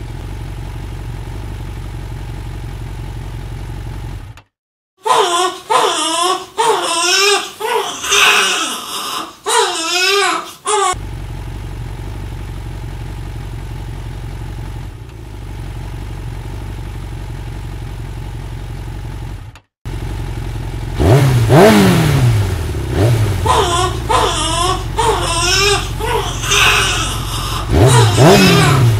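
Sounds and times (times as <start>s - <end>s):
low engine rumble: 0.0s - 4.5s, 10.7s - 28.9s
baby crying: 5.0s - 11.0s, 23.4s - 28.9s.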